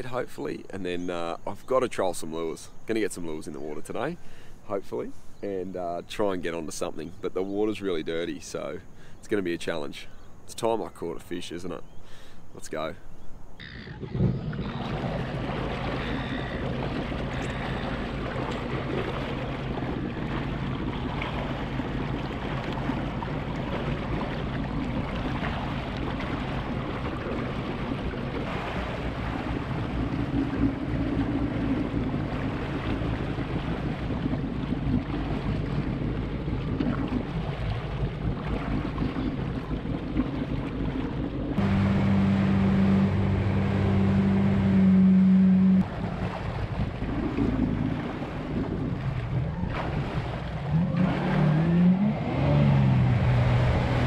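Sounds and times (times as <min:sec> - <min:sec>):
jet ski engine running: 0:13.6 - 0:49.8, 0:50.4 - 0:54.0.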